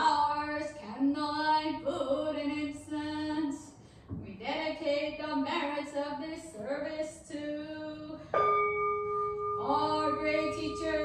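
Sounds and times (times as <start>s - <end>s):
bowl bell ringing: 8.4s - 11.0s
women singing: 9.6s - 11.0s.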